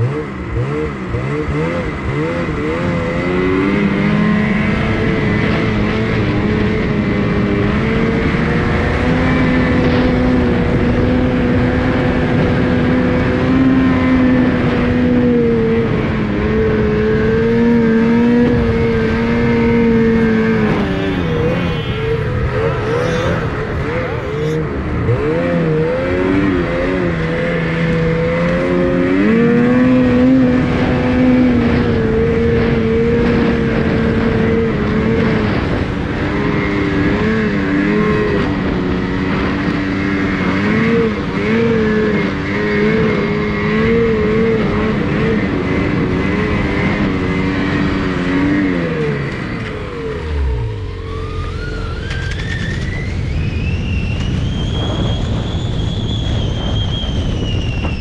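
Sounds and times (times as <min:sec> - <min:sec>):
snowmobile engine revving: 0:00.0 - 0:53.2
rising whine: 0:00.0 - 0:58.0.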